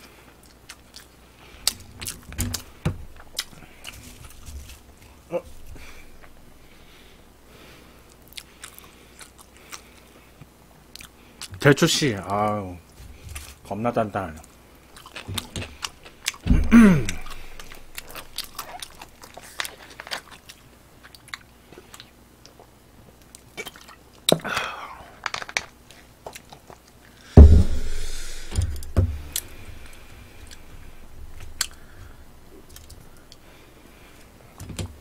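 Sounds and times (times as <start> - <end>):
chewing and lip-smacking: 0.3 - 4.0, 8.1 - 11.6, 14.8 - 16.5, 17.1 - 24.4, 25.8 - 27.1, 31.4 - 33.5
brief hiss: 27.4 - 28.8
loud thump: 27.4 - 29.3.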